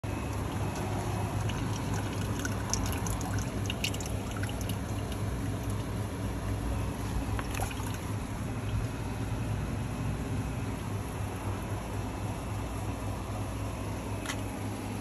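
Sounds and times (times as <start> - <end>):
steady low rumble: 0.0 - 15.0
small drips and splashes: 0.1 - 6.3, 7.0 - 9.0
liquid trickling into plastic can: 0.2 - 5.9, 7.2 - 8.8.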